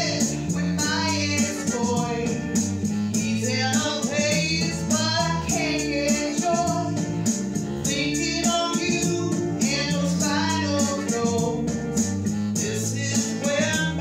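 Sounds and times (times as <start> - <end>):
woman singing into microphone: 0.0 - 2.4, 7.9 - 11.6, 12.6 - 14.0.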